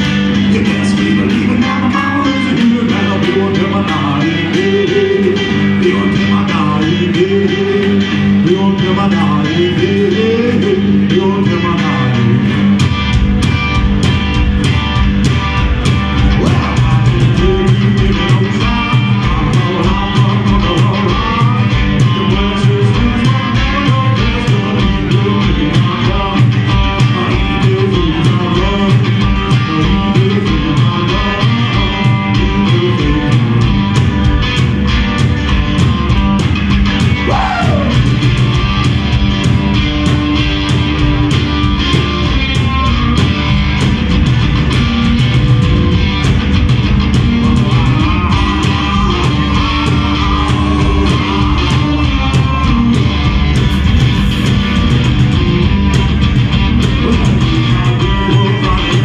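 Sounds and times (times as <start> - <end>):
man singing: 0.0 - 12.9, 16.1 - 34.1, 37.0 - 38.3, 47.2 - 59.0
electric guitars: 0.0 - 59.0
steady drum beat: 0.0 - 59.0.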